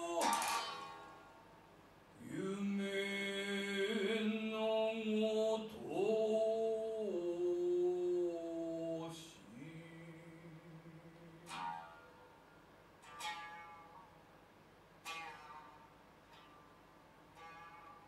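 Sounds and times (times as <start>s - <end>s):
man chanting: 0.0s - 1.2s, 2.2s - 11.9s.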